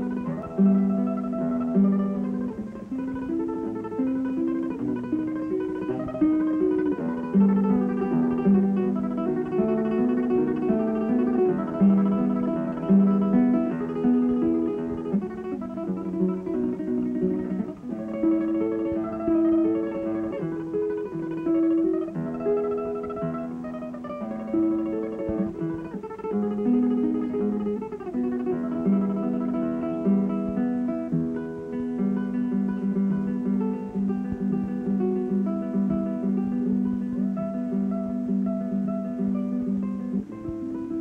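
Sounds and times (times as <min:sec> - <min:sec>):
plucked guitar melody: 0:00.0 - 0:41.0.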